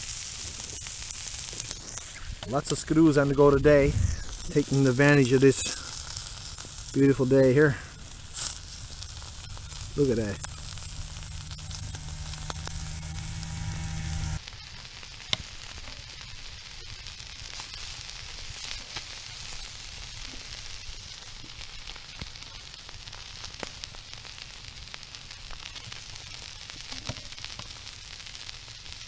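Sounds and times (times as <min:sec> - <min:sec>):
crackles and ticks: 0:00.0 - 0:29.0
fish sizzling on stove: 0:00.0 - 0:29.0
low hum: 0:01.6 - 0:14.4.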